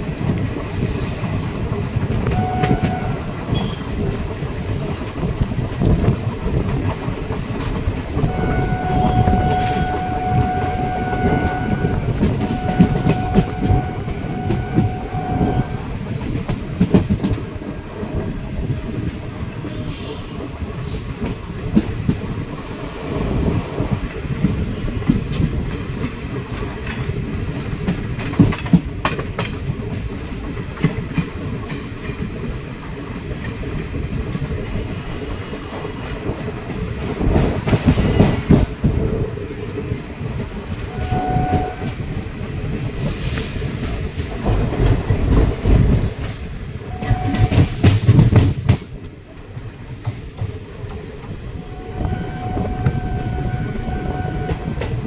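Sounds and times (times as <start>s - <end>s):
train wheels clattering on rails: 0.0s - 55.0s
train horn blasts: 2.3s - 3.9s, 8.2s - 16.0s, 19.6s - 20.5s, 40.9s - 42.0s, 46.9s - 47.9s, 51.6s - 55.0s.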